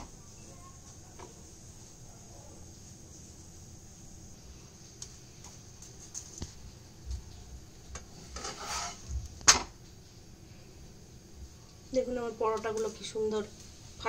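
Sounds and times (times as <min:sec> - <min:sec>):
spatula scraping and tapping a pan: 0:07.9 - 0:09.6.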